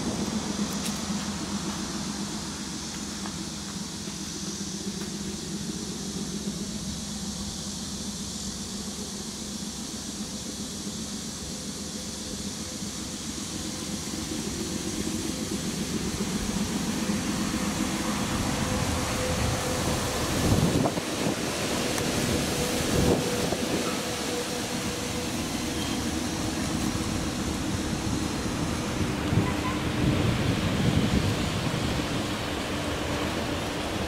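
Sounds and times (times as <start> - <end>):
low engine-like hum: 0.0 - 34.0
wind on microphone: 18.7 - 24.0, 26.8 - 32.5.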